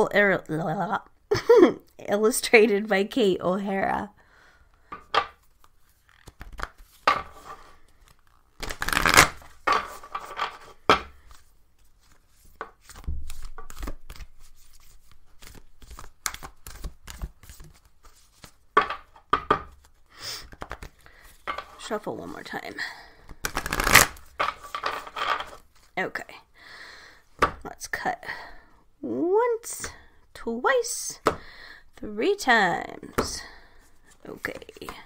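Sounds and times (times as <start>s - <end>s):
cards being shuffled by hand: 5.3s - 21.8s, 23.2s - 26.0s, 34.0s - 35.0s.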